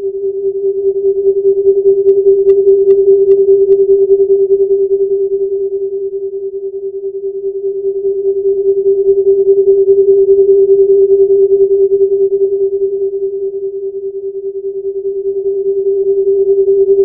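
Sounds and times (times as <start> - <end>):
fluttering droning tone: 0.0 - 17.0.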